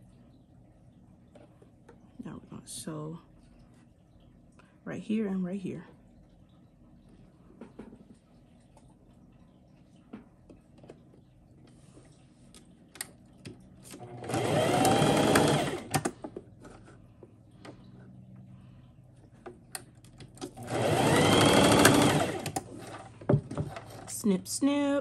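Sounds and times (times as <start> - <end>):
electric sewing machine running: 13.9 - 16.0, 20.6 - 23.1.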